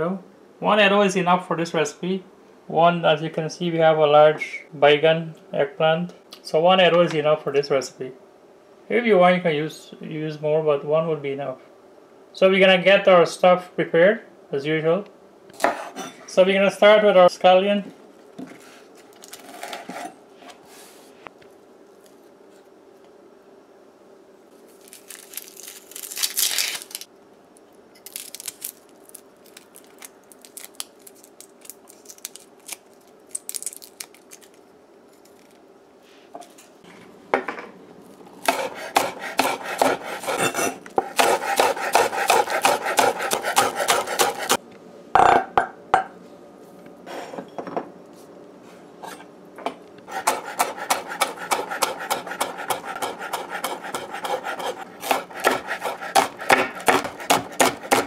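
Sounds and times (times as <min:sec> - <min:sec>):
knife chopping on wooden board: 0:38.4 - 0:44.6, 0:50.1 - 0:58.0
knife scraping onion skin: 0:38.4 - 0:44.6, 0:50.1 - 0:58.0.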